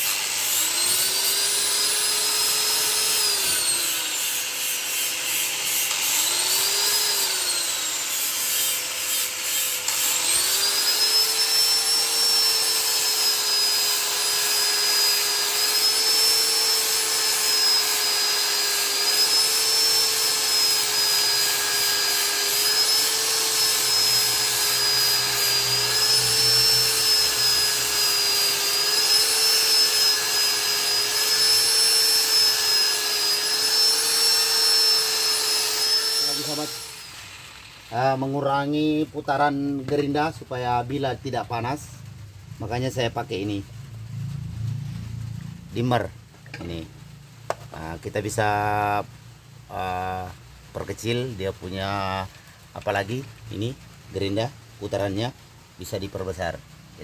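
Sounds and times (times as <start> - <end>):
angle grinder grinding blade: 0.0 - 42.0, 45.8 - 46.9.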